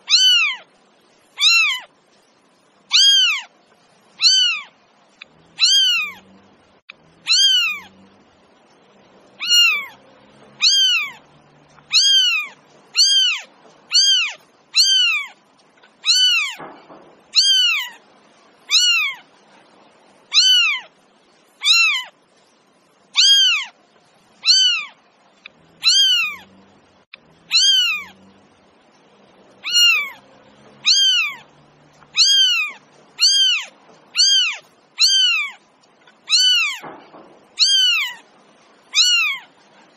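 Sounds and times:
cat meowing: 0.0 - 0.7, 1.4 - 1.9, 2.9 - 3.5, 4.2 - 4.8, 5.5 - 6.3, 7.2 - 8.0, 9.4 - 15.4, 16.0 - 16.7, 17.3 - 18.0, 18.6 - 19.3, 20.3 - 20.9, 21.6 - 22.2, 23.2 - 23.8, 24.4 - 25.0, 25.8 - 26.5, 27.5 - 28.2, 29.6 - 30.2, 30.8 - 36.9, 37.6 - 38.2, 38.9 - 39.6.

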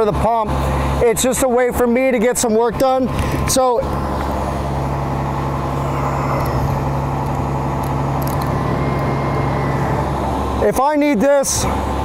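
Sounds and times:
fire engine pump droning: 0.0 - 12.0.

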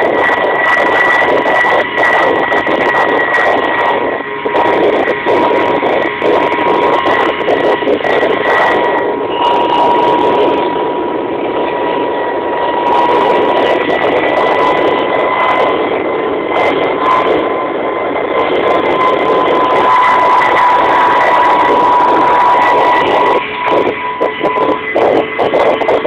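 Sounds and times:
helicopter in flight from cabin: 0.0 - 26.0.

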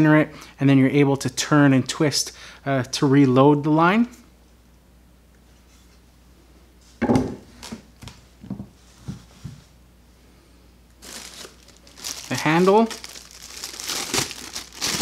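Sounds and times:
knocks on wooden workbench: 7.0 - 7.4
plastic wrapping rustling: 11.0 - 15.0.

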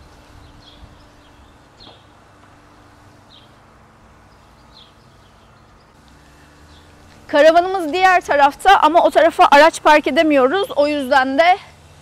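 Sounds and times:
small bird chirping: 0.0 - 2.1, 4.2 - 6.0
low steady hum: 0.0 - 12.0.

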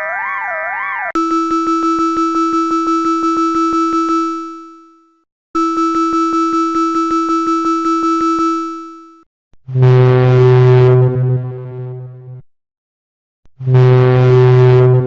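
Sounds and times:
wavering siren: 0.0 - 4.9
pulsing two-pitch alarm tone: 1.2 - 9.2.

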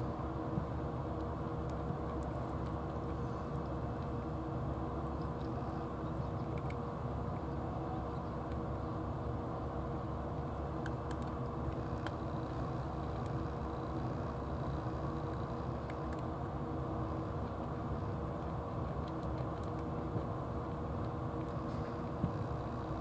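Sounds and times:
cat crunching dry food: 6.4 - 8.6, 10.7 - 16.3, 18.4 - 20.4.

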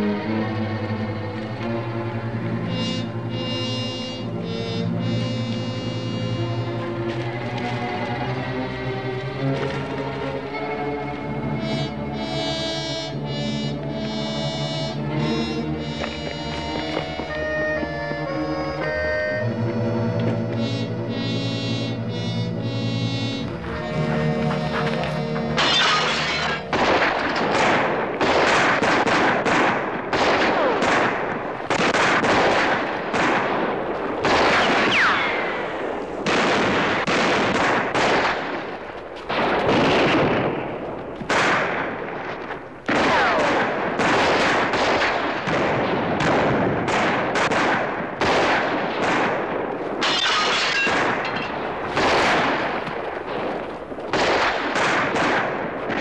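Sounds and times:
heavy gunfire: 25.6 - 56.0.

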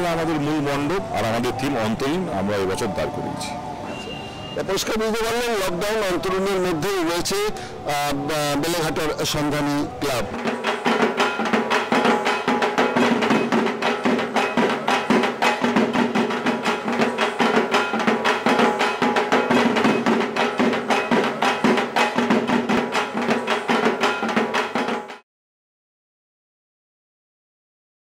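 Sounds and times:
drum-led background music: 4.9 - 25.2.

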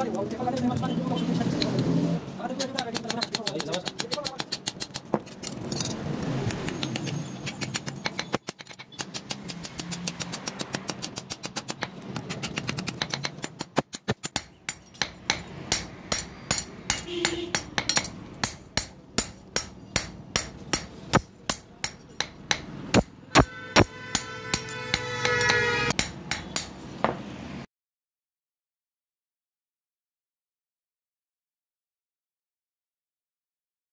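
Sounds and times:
hammer striking metal on anvil: 12.9 - 27.2.

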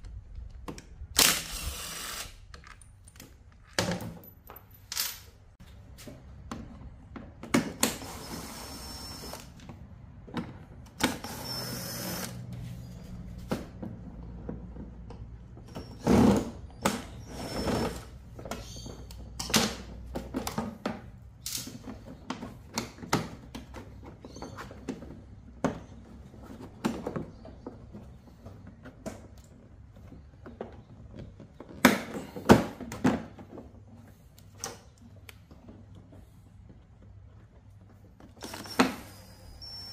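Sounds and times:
cordless drill spinning bolts: 1.2 - 2.4, 11.0 - 12.4, 38.4 - 39.9.

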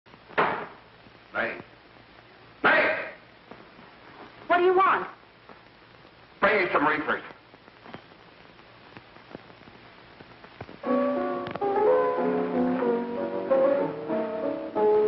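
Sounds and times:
piano playing chords: 10.8 - 15.0.

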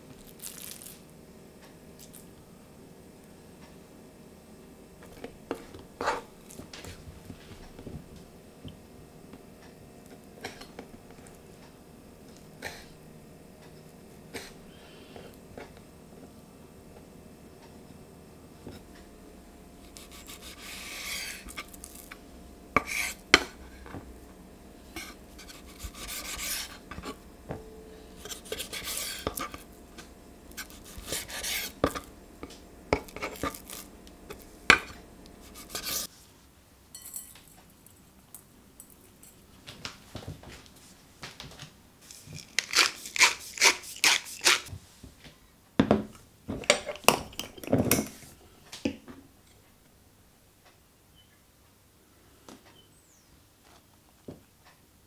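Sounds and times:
knife slicing raw meat: 42.6 - 44.7.

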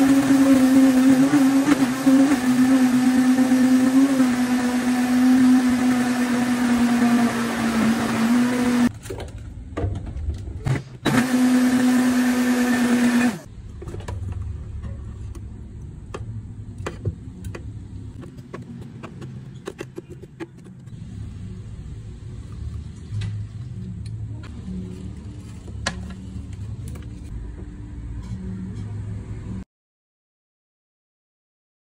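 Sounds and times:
blender motor whining: 0.0 - 8.9, 11.0 - 13.5.

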